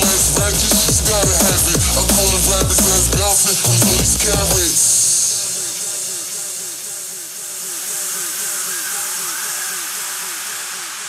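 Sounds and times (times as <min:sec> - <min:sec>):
steady hiss: 0:04.6 - 0:11.0.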